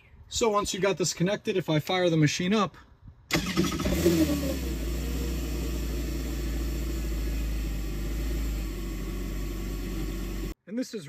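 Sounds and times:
jet ski engine idling: 0:04.2 - 0:10.6.

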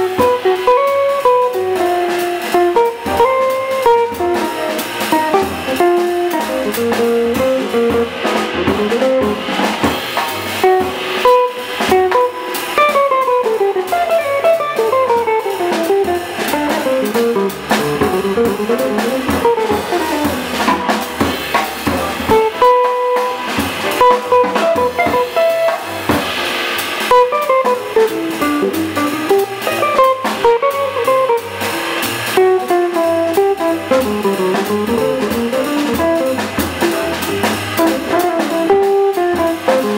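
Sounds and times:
electric guitar solo: 0:00.0 - 0:04.5, 0:10.6 - 0:18.7, 0:27.1 - 0:31.6
drum kit: 0:00.0 - 0:39.9
piano: 0:00.0 - 0:39.9
walking double bass: 0:00.0 - 0:39.9.

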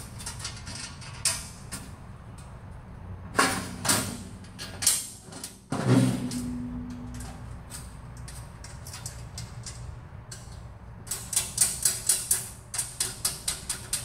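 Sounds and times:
steel plates clanking and scraping: 0:03.3 - 0:14.0
metal creak: 0:05.7 - 0:14.0.

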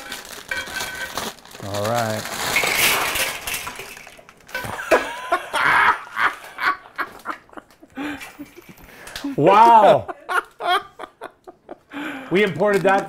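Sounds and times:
dry pasta clattering on floor: 0:00.0 - 0:04.8.

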